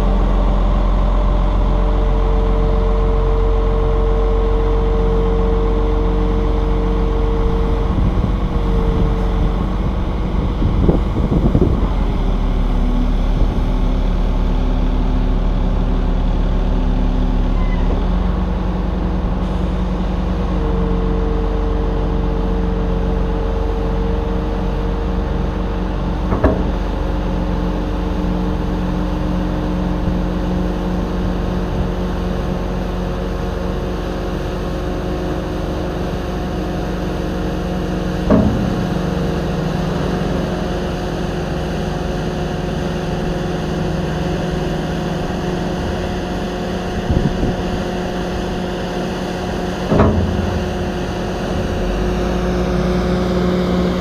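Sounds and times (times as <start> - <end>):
drivetrain whine: 0.0 - 54.0
dump truck diesel engine: 0.0 - 54.0
knocks from truck body: 26.3 - 26.9, 38.1 - 41.4, 49.6 - 52.6.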